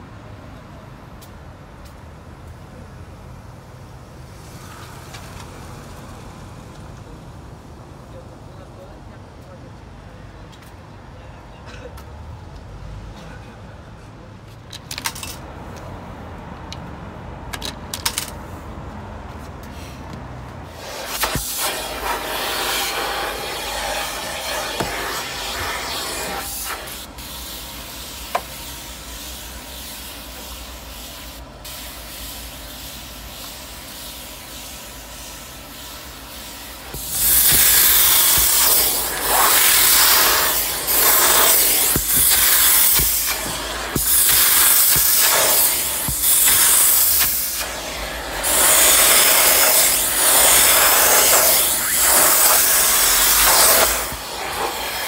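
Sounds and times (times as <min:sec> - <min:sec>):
steam hissing onto fabric: 0:20.7 - 0:55.0
machine steady rushing noise: 0:36.8 - 0:55.0.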